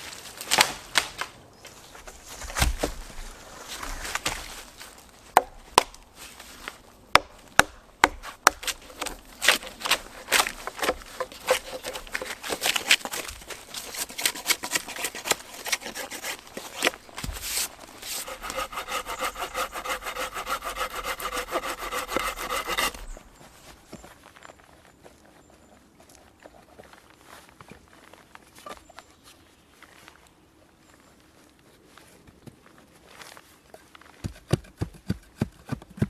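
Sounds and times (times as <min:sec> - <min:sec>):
knife scraping bark off wood: 0:08.0 - 0:23.2
small saw cutting wood: 0:08.5 - 0:23.2.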